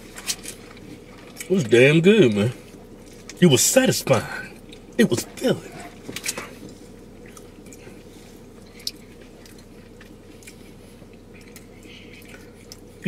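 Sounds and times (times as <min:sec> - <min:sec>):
person chewing food: 0:00.0 - 0:01.5, 0:04.5 - 0:13.0
steady low hum: 0:00.0 - 0:13.0.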